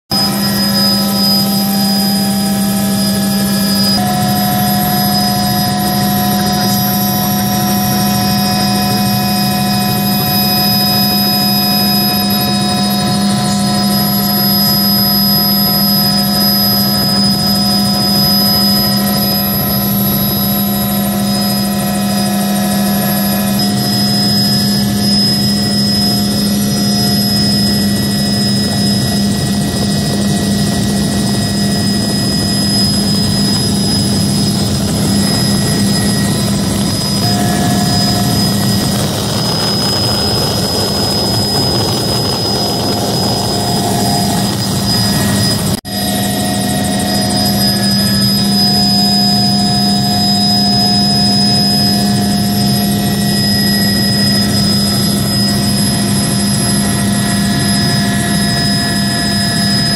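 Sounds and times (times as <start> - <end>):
helicopter rotor and engine hum: 0.0 - 59.9
high-pitched turbine whine: 0.1 - 59.9.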